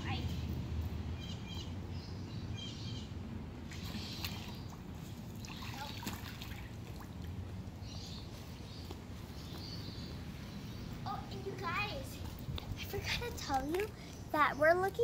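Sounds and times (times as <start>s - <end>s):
water trickling and lapping: 3.6s - 15.0s.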